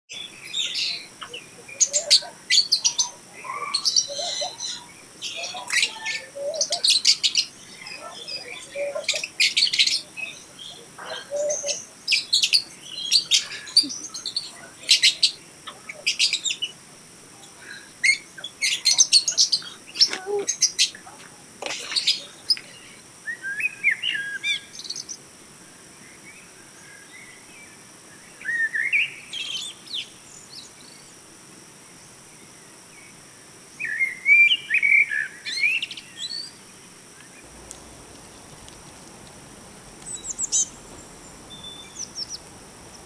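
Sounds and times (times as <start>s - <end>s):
lovebirds chattering: 0.6s - 16.7s, 18.0s - 21.0s, 37.4s - 43.0s.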